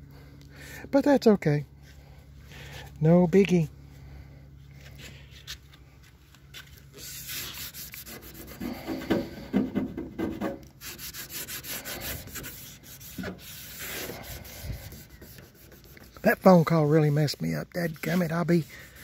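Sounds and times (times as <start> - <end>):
squeaky rubs: 6.9 - 8.9, 10.8 - 19.0
cloth rag rubbing on metal: 6.9 - 9.5, 10.2 - 19.0.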